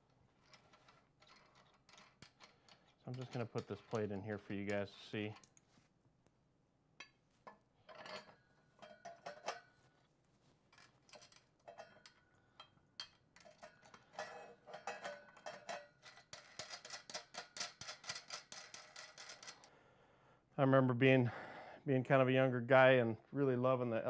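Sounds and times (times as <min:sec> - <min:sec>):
metal tray clinking and knocking: 0:07.9 - 0:09.7, 0:13.0 - 0:19.5.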